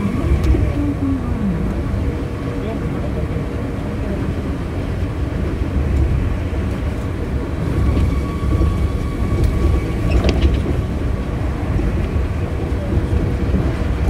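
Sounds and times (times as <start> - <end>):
monorail train rumble: 0.0 - 14.0
high whine: 7.1 - 12.7.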